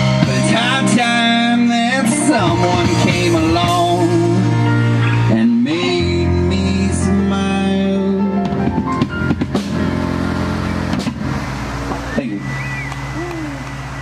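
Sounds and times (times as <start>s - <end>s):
rock band instrumental: 0.0s - 14.0s
drum hits: 8.4s - 12.1s.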